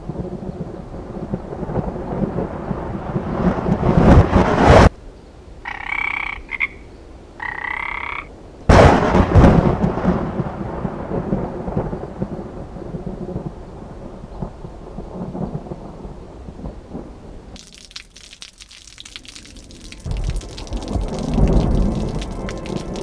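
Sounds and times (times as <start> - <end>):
thunder clap rumbling: 0.0 - 4.9, 8.7 - 23.0
frog croaking: 5.6 - 8.3.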